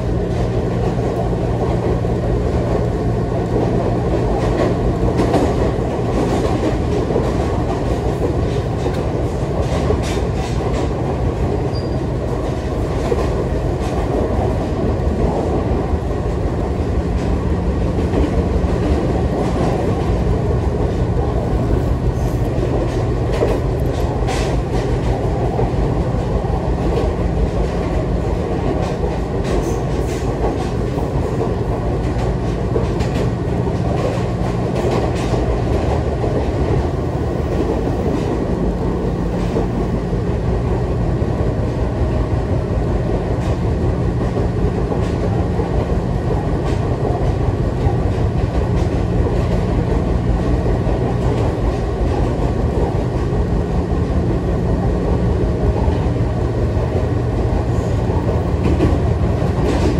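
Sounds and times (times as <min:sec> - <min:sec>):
train rumble and hum: 0:00.0 - 0:59.9
wheels clicking on rails: 0:00.2 - 0:40.9.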